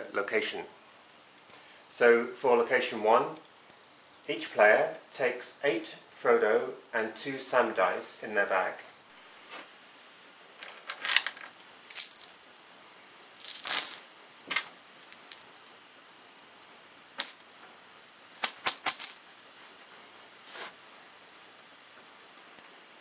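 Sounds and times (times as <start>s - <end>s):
dice clicking and clattering: 10.9s - 12.4s, 13.4s - 15.4s, 17.1s - 17.5s, 18.4s - 19.2s.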